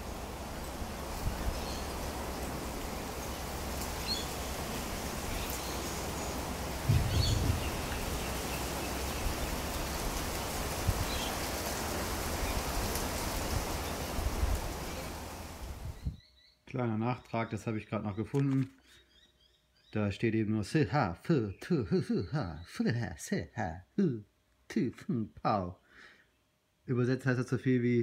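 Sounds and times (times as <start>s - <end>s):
breeze through leaves: 0.0s - 19.9s
wind rumble on microphone: 1.1s - 1.9s, 6.8s - 16.2s
faint bird chirps: 6.9s - 9.0s, 16.0s - 20.1s.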